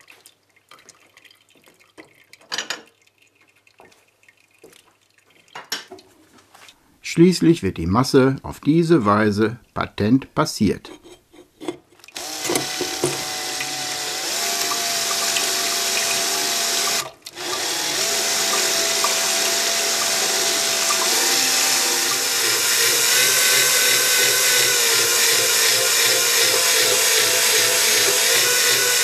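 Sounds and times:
electric drill motor whining: 0:12.2 - 0:29.0.

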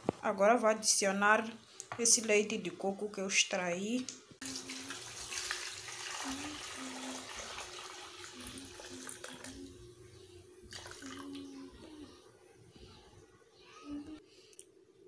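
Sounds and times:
liquid pouring into a pot: 0:04.4 - 0:09.7, 0:10.7 - 0:11.4.

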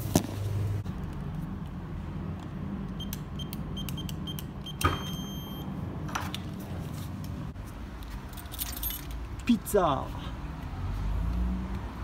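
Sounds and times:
keypad beeping: 0:03.0 - 0:05.6.

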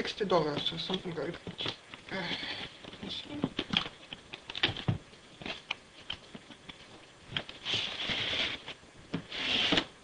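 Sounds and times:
cardboard sliding against cardboard: 0:07.6 - 0:09.9.

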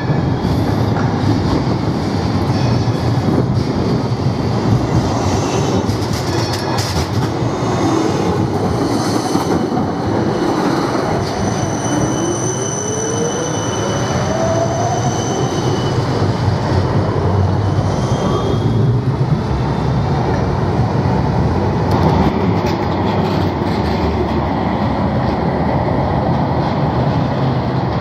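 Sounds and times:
tram wheels rumbling on rail: 0:00.0 - 0:28.0
high wheel squeal: 0:11.2 - 0:16.2.

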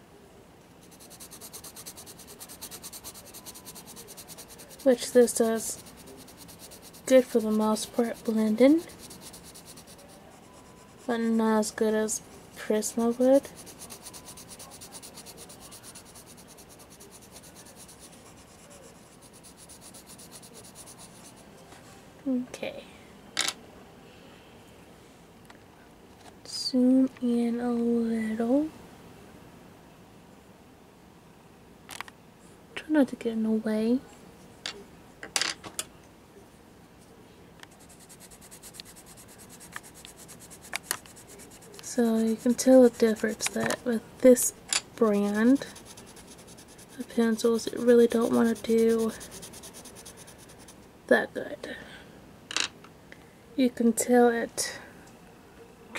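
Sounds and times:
pencil scratching on paper: 0:00.8 - 0:11.9, 0:12.5 - 0:21.4, 0:37.6 - 0:44.0, 0:45.0 - 0:50.9.

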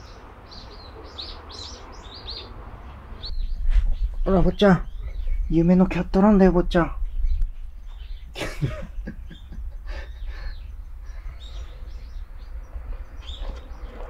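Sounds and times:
small birds chirping: 0:00.0 - 0:14.0
low steady rumble: 0:03.3 - 0:14.0.

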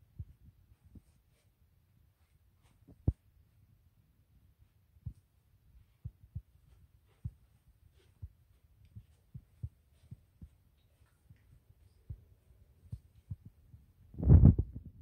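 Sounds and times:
footsteps walking: 0:05.1 - 0:13.9.

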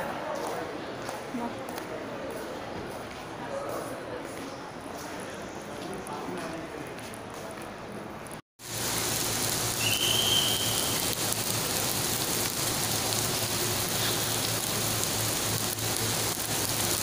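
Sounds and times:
heavy rain on pavement: 0:08.6 - 0:17.0.

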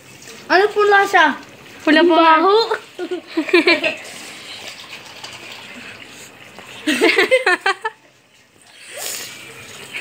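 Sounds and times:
water splashing from jerrycan spout: 0:00.0 - 0:07.2.

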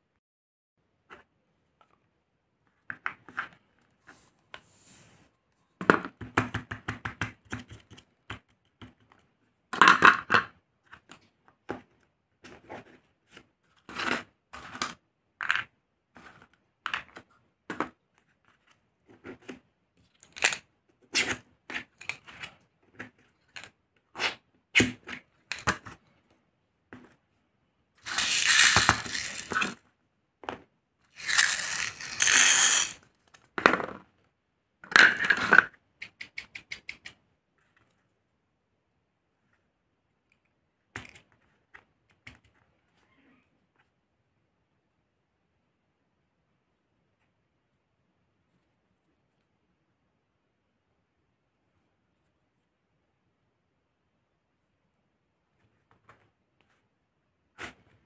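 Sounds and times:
plastic shells clicking on table: 0:28.0 - 0:29.8, 0:31.2 - 0:33.0
plastic shells rattling: 0:28.0 - 0:29.8, 0:31.2 - 0:33.0.

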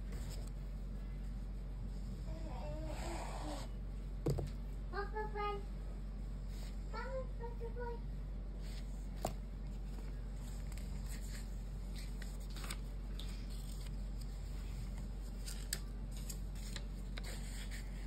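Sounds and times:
steady low hum: 0:00.0 - 0:18.0
pen being set down: 0:04.2 - 0:04.6.

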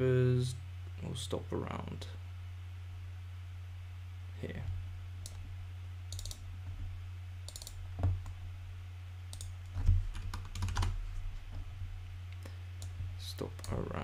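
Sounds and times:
steady low hum: 0:00.0 - 0:14.0
keyboard keystrokes: 0:06.1 - 0:06.4, 0:07.5 - 0:07.8, 0:09.3 - 0:10.9
mouse clicks: 0:09.3 - 0:09.6.

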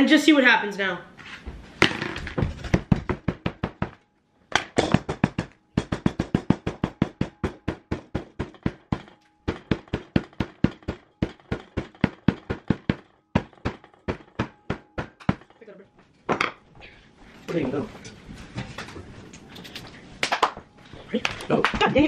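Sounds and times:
hammer striking dry ice: 0:04.6 - 0:15.6.

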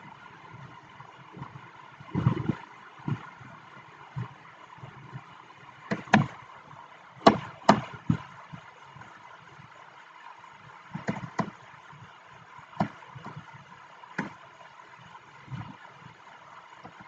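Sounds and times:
steady background hum: 0:00.0 - 0:17.0.

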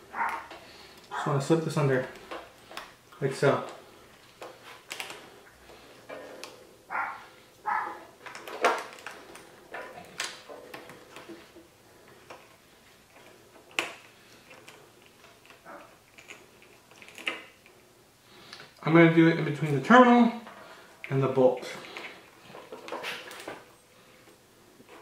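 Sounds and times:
small metal parts clicking: 0:13.1 - 0:17.7.

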